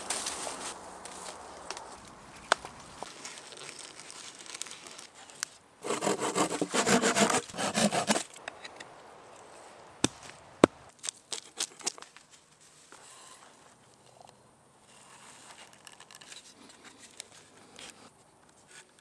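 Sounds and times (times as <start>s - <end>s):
hand saw cutting log: 5.8s - 8.3s.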